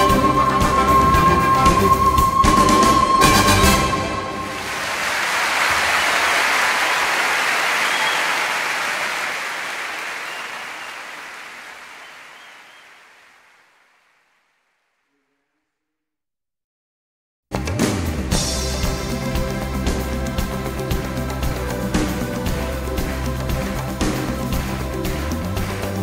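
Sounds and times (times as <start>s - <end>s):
applause: 4.2s - 14.6s, 19.9s - 26.0s.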